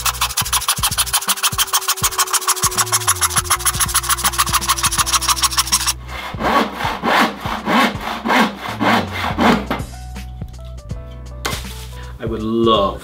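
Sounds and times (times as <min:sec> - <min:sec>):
hand saw cutting wood: 0:00.0 - 0:10.0.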